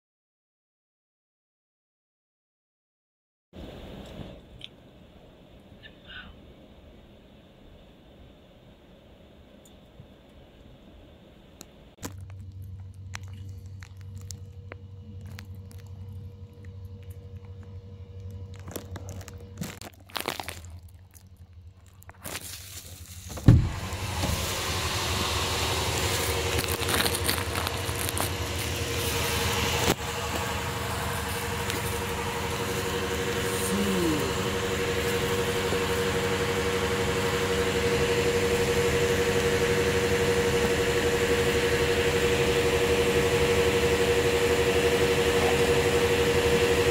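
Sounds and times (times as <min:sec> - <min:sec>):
fuel pump motor hum: 0:12.0 - 0:46.9
fuel flowing through nozzle: 0:22.2 - 0:46.9.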